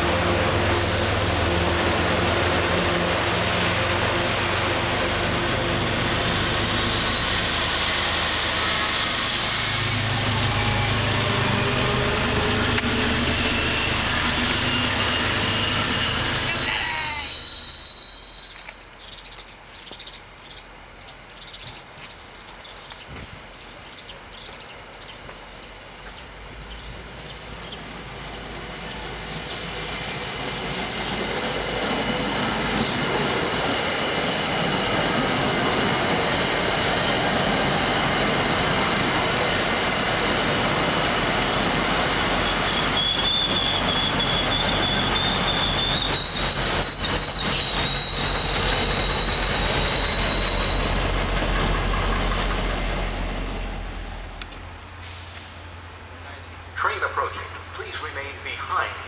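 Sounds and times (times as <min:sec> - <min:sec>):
train passing: 0:00.0 - 0:20.4, 0:23.3 - 0:59.0
high wheel squeal: 0:06.6 - 0:18.7, 0:42.3 - 0:55.3.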